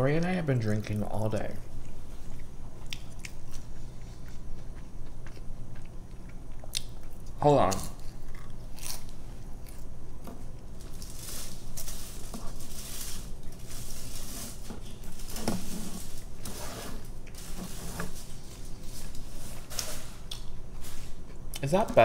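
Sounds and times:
aluminium foil crinkling: 10.7s - 21.2s.

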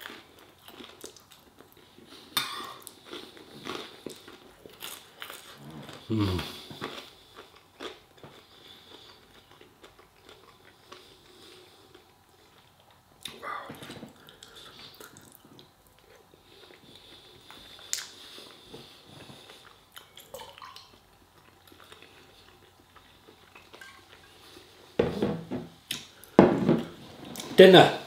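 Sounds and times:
quiet chewing: 0.0s - 25.0s.

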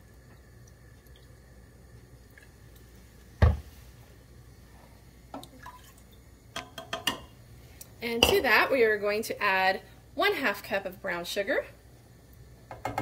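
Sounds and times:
liquid pouring into plastic cup: 5.4s - 6.2s.

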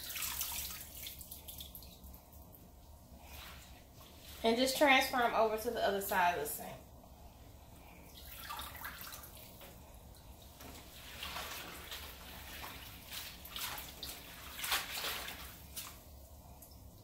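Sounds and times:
water splashing and dripping: 0.0s - 2.7s, 8.1s - 17.0s.

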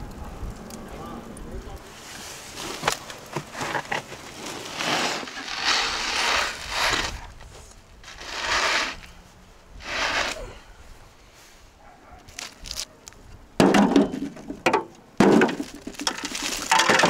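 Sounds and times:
tray scraping on oven floor: 3.5s - 7.3s, 8.0s - 9.1s, 9.8s - 10.4s.

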